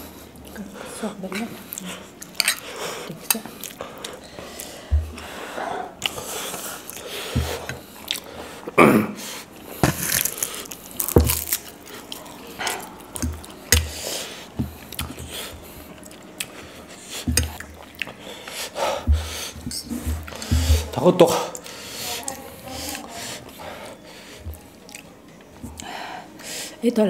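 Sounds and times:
chewing and biting: 1.7 - 5.3, 6.0 - 8.8, 9.6 - 20.6.

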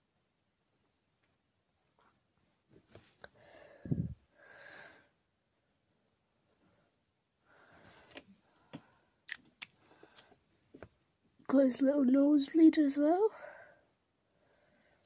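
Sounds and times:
breathing close to microphone: 3.3 - 5.1, 7.5 - 9.1, 9.8 - 10.4.

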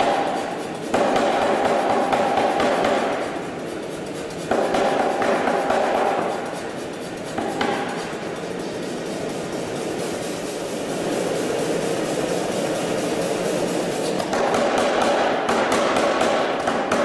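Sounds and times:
power hammer striking hot steel: 0.0 - 3.4, 4.5 - 6.6, 13.8 - 17.0.

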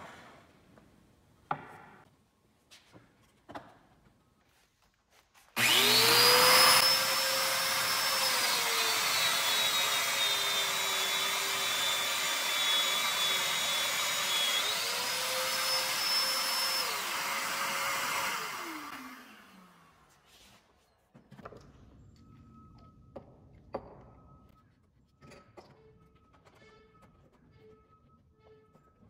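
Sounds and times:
dust extractor rushing: 5.6 - 19.8
joiner motor whine: 5.6 - 19.8.

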